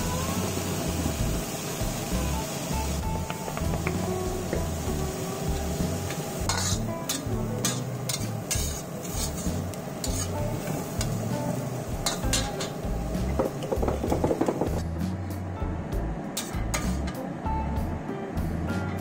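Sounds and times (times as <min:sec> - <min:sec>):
food sizzling: 0:00.0 - 0:15.0
metal spatula scraping a wok: 0:06.4 - 0:11.2.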